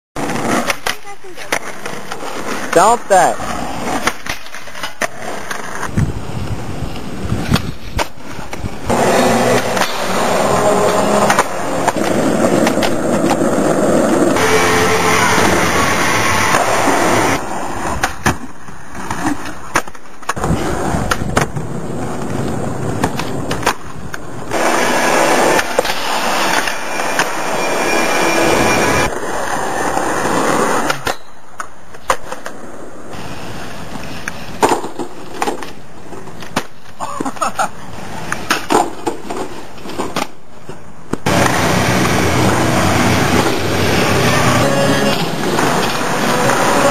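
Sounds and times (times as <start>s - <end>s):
skateboard wheels rolling: 0.2s - 46.9s
skateboard clacks: 7.4s - 14.3s, 33.9s - 42.2s.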